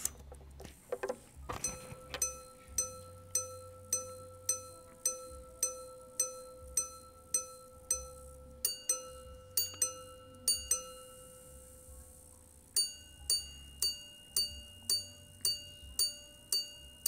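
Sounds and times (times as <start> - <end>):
watch chiming on gongs: 1.6 - 11.9, 12.8 - 17.0.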